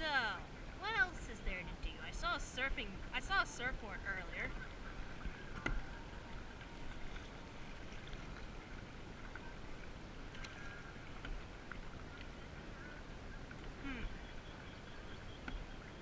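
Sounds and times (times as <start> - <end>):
water and wind hiss: 0.0 - 16.0
paddle splashes and drips: 4.2 - 16.0
faint paddle clicks: 4.4 - 15.9.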